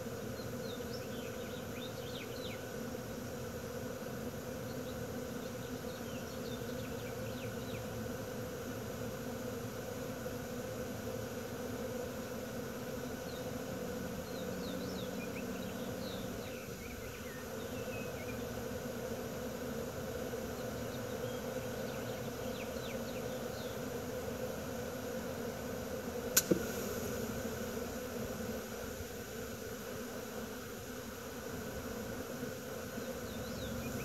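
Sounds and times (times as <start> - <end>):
bee swarm buzzing: 0.0 - 34.0
sharp click: 26.4 - 26.7.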